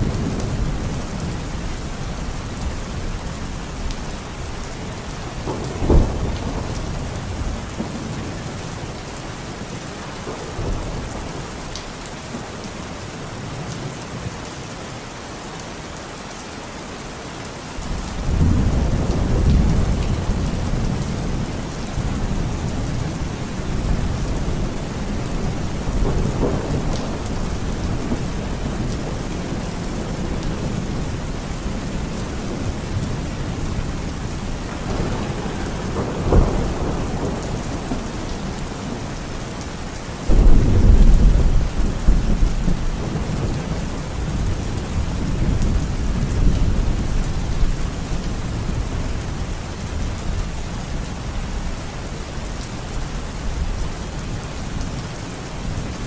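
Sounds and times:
heavy rain falling: 0.0s - 56.0s
thunder rumbling: 5.4s - 8.4s, 18.2s - 39.2s, 40.3s - 47.8s.

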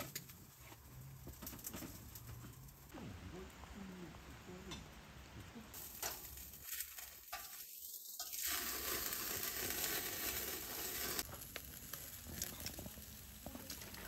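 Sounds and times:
meat sizzling on grill: 0.0s - 2.9s, 5.7s - 14.0s.

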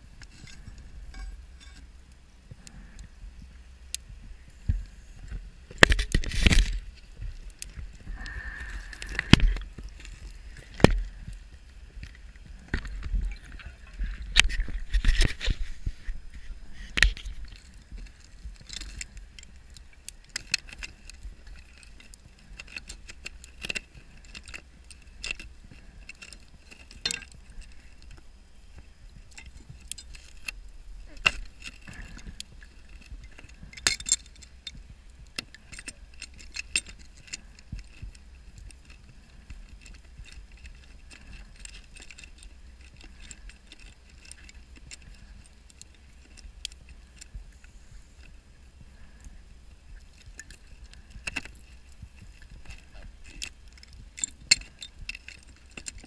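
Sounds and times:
diving gear clinking on metal: 0.3s - 2.0s, 17.5s - 28.2s, 31.1s - 47.4s, 50.0s - 56.0s.

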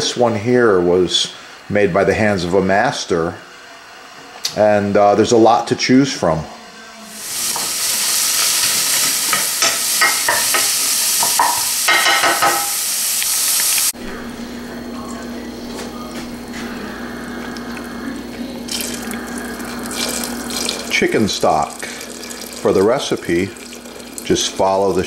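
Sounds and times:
stock pouring into pan: 7.2s - 13.9s, 18.7s - 25.0s
vegetables sizzling in pan: 7.2s - 14.0s, 18.7s - 25.0s.

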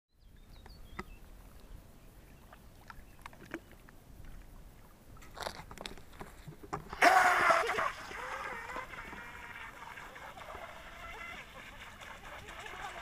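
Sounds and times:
boat hull splashing in water: 6.9s - 13.0s.

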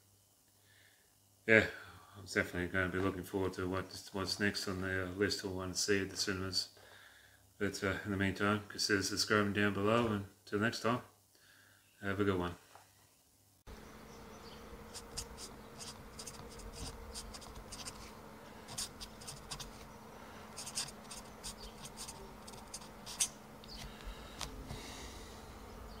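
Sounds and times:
steady low hum: 13.7s - 26.0s
marker writing on paper: 14.9s - 19.9s, 20.5s - 23.9s.

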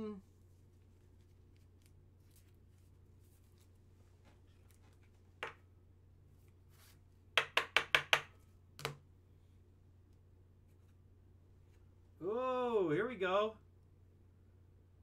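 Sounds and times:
cards tapping on hard surface: 7.4s - 9.0s.

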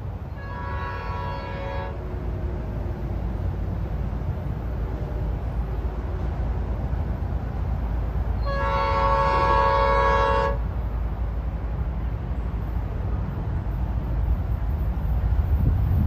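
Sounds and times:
train horn blast: 0.3s - 2.1s, 8.4s - 10.7s
steady low rumble: 10.7s - 16.0s.

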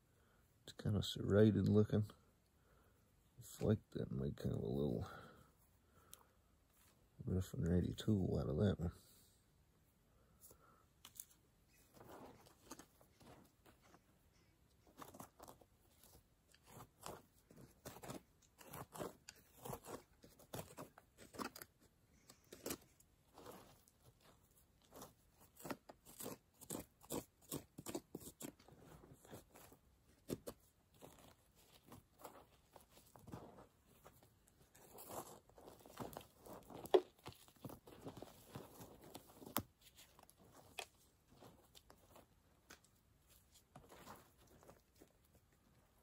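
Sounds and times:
hand tool scraping through dirt: 14.9s - 21.8s, 22.4s - 42.4s.

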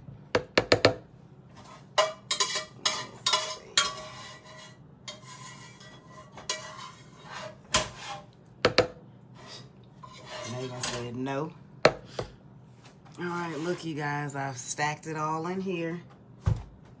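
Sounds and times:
dishes and spoon clinking: 1.9s - 8.2s.

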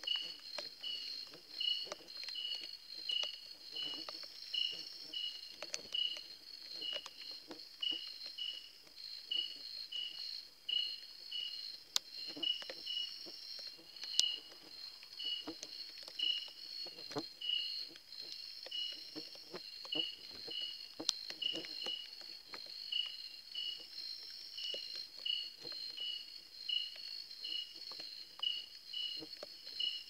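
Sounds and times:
insect high-pitched drone: 0.0s - 30.0s.

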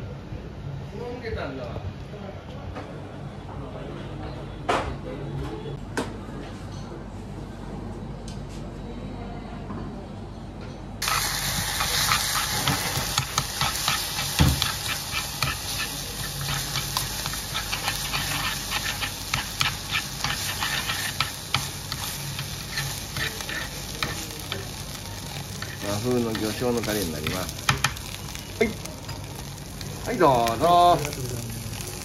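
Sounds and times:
rice sizzling in hot bowl: 11.0s - 32.0s
spoon stirring rice: 11.8s - 24.8s.

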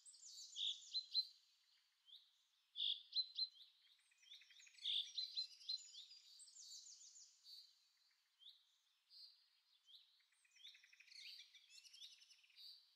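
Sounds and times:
small birds chirping and trilling: 0.0s - 12.9s.

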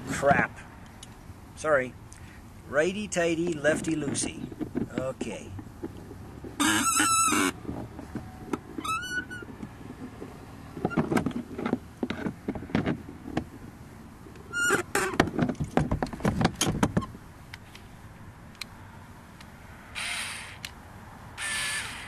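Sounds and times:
short squeaks: 6.6s - 10.2s, 14.4s - 15.2s, 20.0s - 20.7s, 21.4s - 22.0s.

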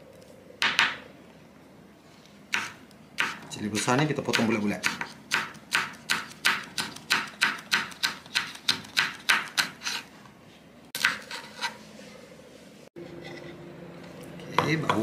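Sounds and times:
knife chopping on cutting board: 2.5s - 10.0s.

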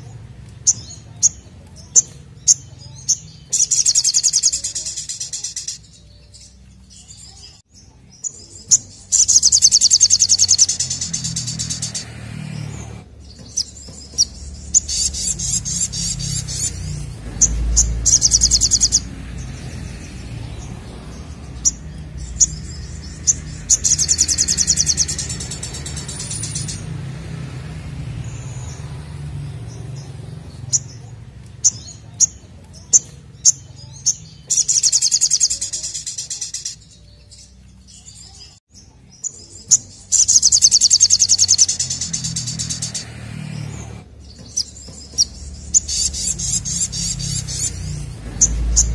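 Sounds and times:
bird sharp chips: 0.0s - 27.2s, 29.6s - 38.6s, 39.2s - 48.9s
bird trilling: 0.6s - 7.5s, 8.2s - 26.9s, 31.6s - 37.1s, 39.7s - 48.9s.

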